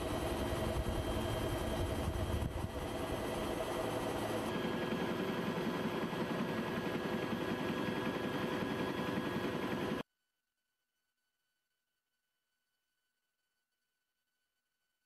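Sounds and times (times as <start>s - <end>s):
aircraft engine drone in cabin: 0.0s - 10.0s
steady whining tones: 0.0s - 10.0s.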